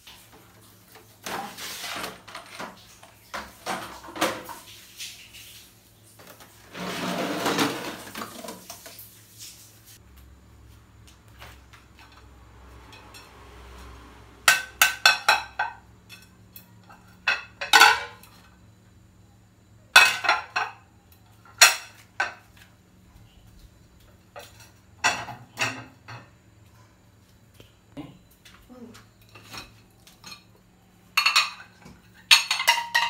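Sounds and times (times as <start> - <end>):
ceramic plates clinking: 20.0 - 20.8, 24.3 - 26.3, 31.1 - 33.0.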